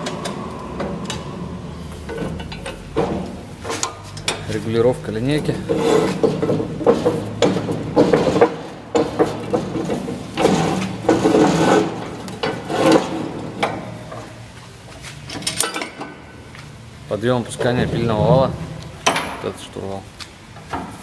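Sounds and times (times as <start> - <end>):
saw fence scraping along table: 5.4 - 13.6.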